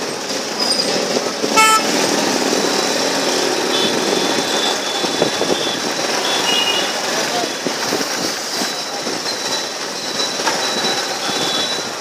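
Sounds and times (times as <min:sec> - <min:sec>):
short horn beep: 0:01.6 - 0:01.9.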